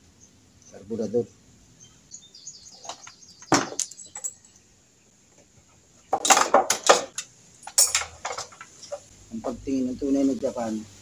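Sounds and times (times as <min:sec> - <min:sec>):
metal engine parts clinking: 0:02.8 - 0:04.6, 0:06.2 - 0:09.1.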